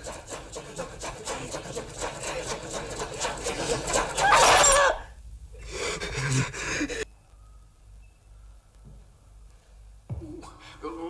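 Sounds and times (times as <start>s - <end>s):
quick repeating sounds: 0.0s - 4.2s.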